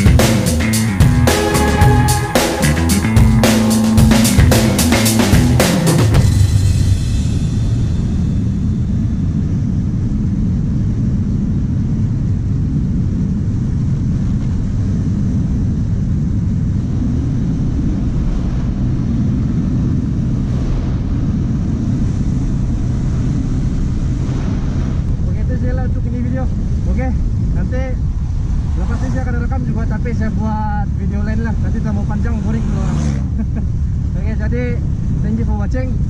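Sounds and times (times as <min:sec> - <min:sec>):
wind on microphone: 0:06.2 - 0:34.2.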